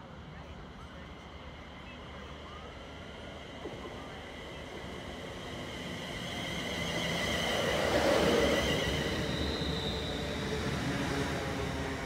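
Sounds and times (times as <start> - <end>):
electric train passing: 2.6 - 12.0.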